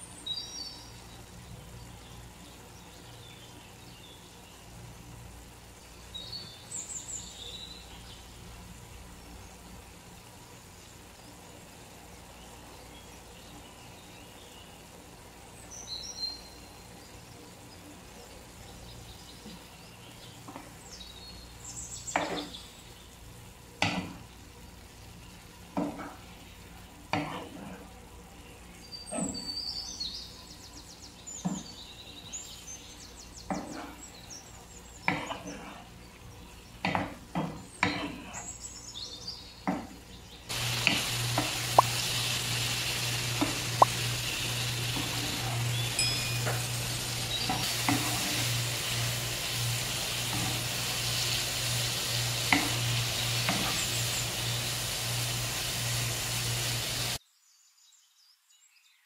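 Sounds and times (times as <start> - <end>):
loud frying sizzle: 0.0 - 57.2
bird chirps: 45.7 - 47.7
wooden spatula scraping frying pan: 47.3 - 49.0.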